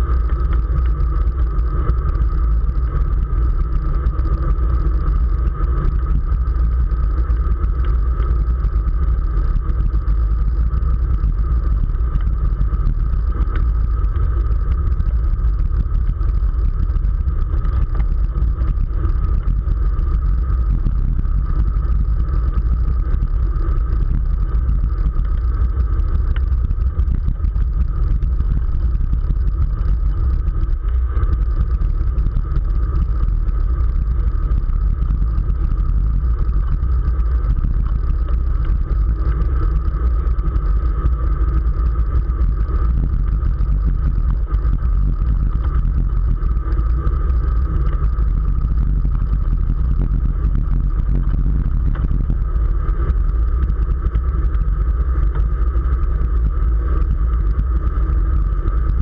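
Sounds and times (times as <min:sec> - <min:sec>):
thin constant hum: 0:00.0 - 0:59.0
wind buffeting microphone: 0:09.6 - 0:54.7.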